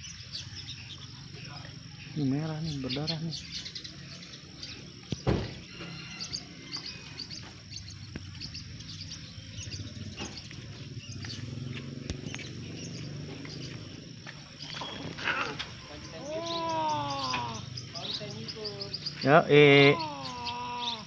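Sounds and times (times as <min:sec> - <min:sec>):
small birds chirping: 0:00.0 - 0:21.0
sharp knock: 0:05.2 - 0:05.6.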